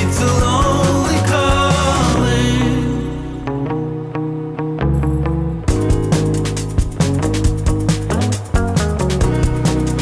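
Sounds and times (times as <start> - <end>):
song with steady drum beat: 0.0 - 3.0, 5.6 - 10.0.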